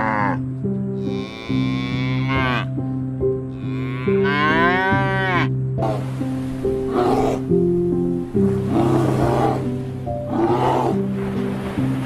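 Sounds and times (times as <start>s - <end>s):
soft background music: 0.0s - 12.0s
cattle mooing: 1.0s - 2.7s, 3.5s - 6.0s, 6.9s - 7.5s, 8.7s - 9.7s, 10.3s - 11.0s.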